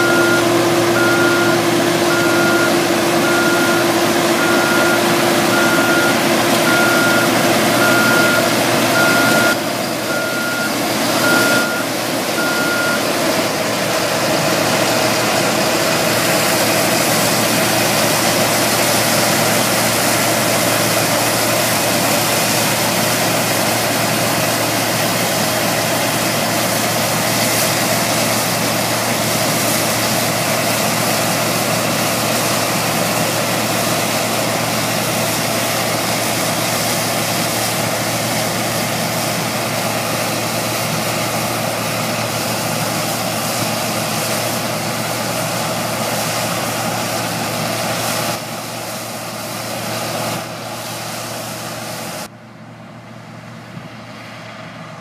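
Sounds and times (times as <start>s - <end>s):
combine harvester running: 0.0s - 55.0s.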